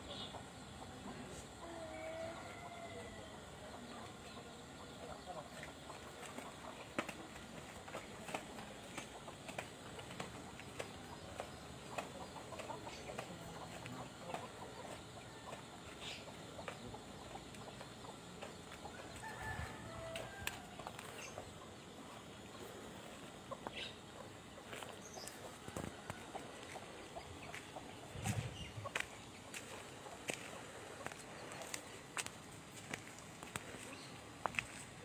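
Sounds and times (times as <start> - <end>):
faint outdoor ambience: 0.0 - 35.0
bird calls: 1.9 - 35.0.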